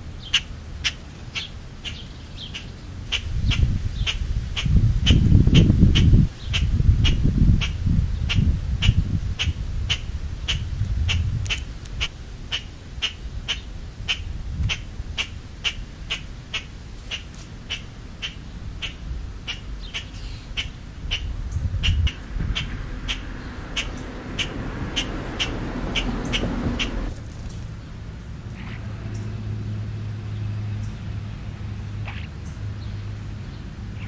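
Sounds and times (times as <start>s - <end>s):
even ticking: 17.7s - 27.1s
crow pecking knocks: 21.8s - 27.1s.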